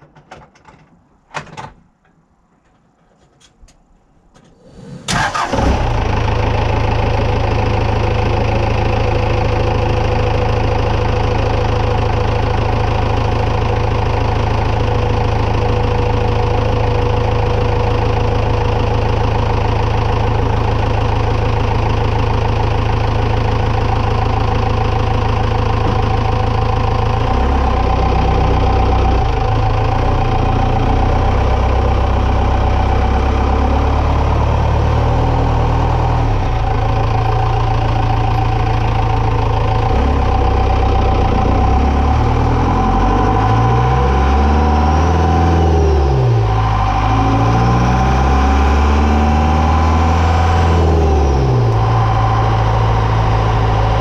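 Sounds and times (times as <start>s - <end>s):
knocks: 0.0s - 3.5s
pickup truck engine starting and idling: 4.5s - 54.0s.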